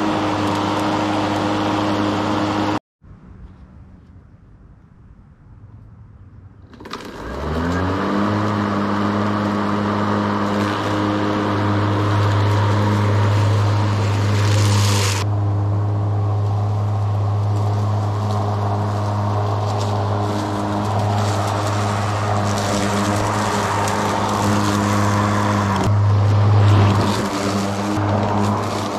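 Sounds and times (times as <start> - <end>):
lawn mower motor humming: 0.0 - 2.8, 6.7 - 28.9
hissing whir: 6.8 - 28.9.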